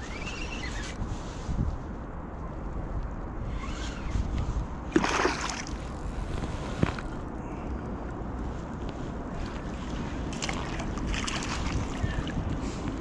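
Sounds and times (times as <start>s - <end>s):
water splash: 4.9s - 5.8s, 10.3s - 12.0s
water sloshing: 4.9s - 6.2s, 9.4s - 12.6s.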